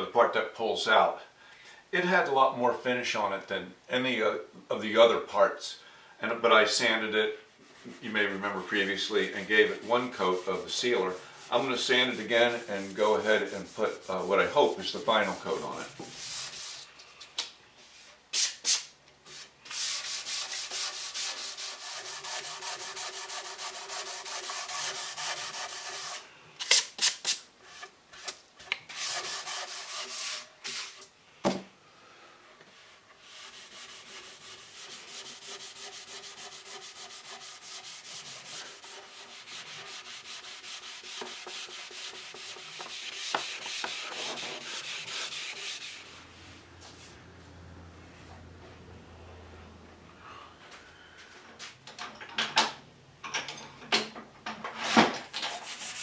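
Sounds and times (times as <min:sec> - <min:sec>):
sanding wood: 0:07.6 - 0:16.9, 0:19.3 - 0:26.3, 0:27.0 - 0:31.0, 0:33.2 - 0:46.6, 0:55.5 - 0:56.0.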